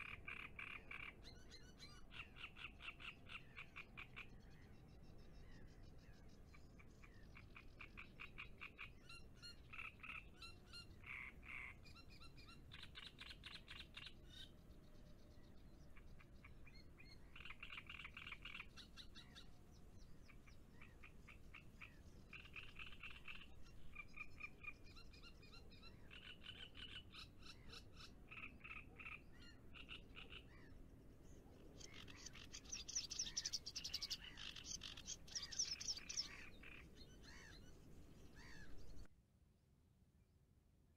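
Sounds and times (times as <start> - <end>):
frogs calling in trills: 0.0 - 4.4, 7.0 - 14.5, 16.0 - 19.5, 20.7 - 30.7, 31.8 - 37.6.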